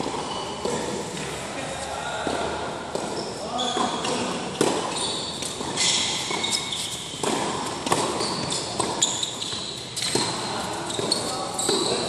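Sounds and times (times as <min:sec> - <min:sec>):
ball bouncing on court: 0:00.0 - 0:01.3, 0:02.2 - 0:12.0
sneakers squeaking on court: 0:00.0 - 0:01.4, 0:02.9 - 0:12.0
rackets striking ball: 0:02.2 - 0:12.0.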